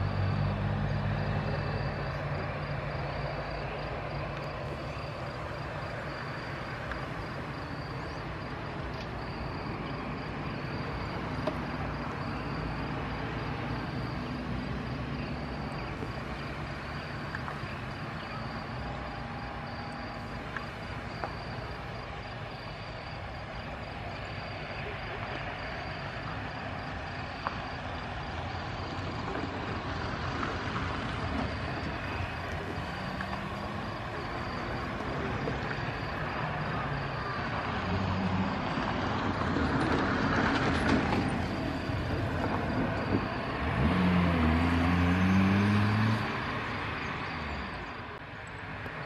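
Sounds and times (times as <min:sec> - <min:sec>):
jet engine whine and rumble: 0:00.0 - 0:43.8
vehicle diesel engine revving: 0:40.4 - 0:47.8.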